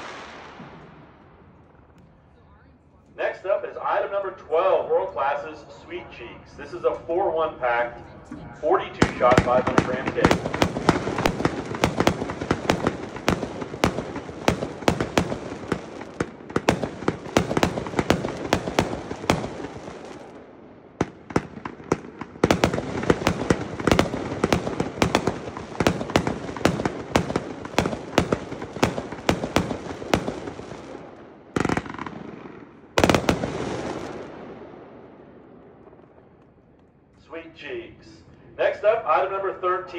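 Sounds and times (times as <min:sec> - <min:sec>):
fireworks launch thumps and bursts: 0:09.0 - 0:20.0, 0:21.0 - 0:30.9.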